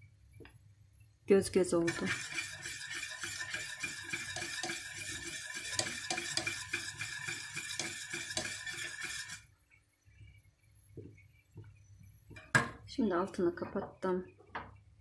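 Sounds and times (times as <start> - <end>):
whisk scraping metal pot: 1.9 - 9.5.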